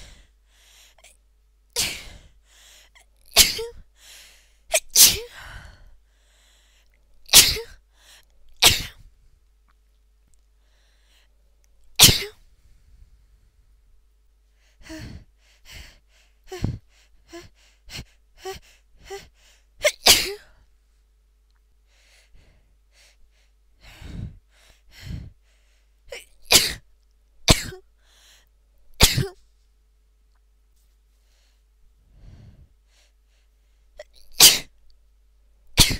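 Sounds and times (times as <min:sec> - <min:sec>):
woman sneezing: 0:03.4 - 0:03.8, 0:04.7 - 0:05.4, 0:07.3 - 0:07.8, 0:08.6 - 0:09.0, 0:12.0 - 0:12.4, 0:19.2 - 0:20.5, 0:29.0 - 0:29.4, 0:34.0 - 0:34.7.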